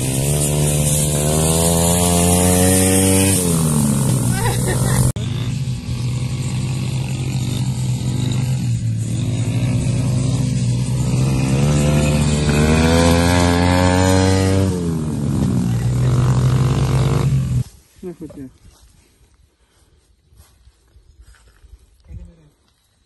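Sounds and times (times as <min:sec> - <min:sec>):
dirt bike engine revving: 0:00.0 - 0:17.8.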